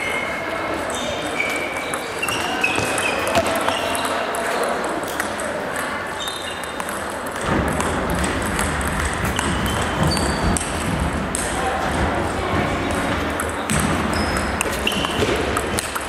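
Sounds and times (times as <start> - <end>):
table tennis ball clicking: 5.0 - 11.5, 13.3 - 16.0.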